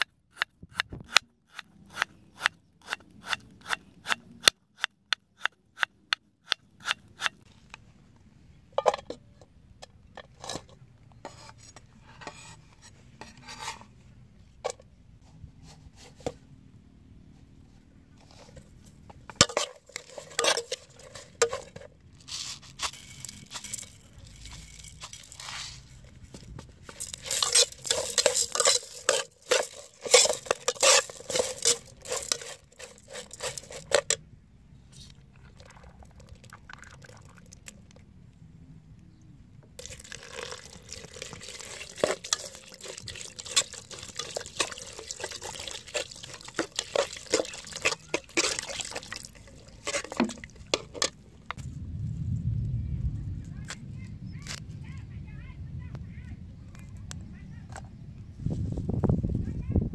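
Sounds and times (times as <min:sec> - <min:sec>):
metal ladle scraping pot: 0:10.2 - 0:14.0, 0:18.3 - 0:34.2, 0:39.8 - 0:51.3
water pouring into pot: 0:39.8 - 0:50.6.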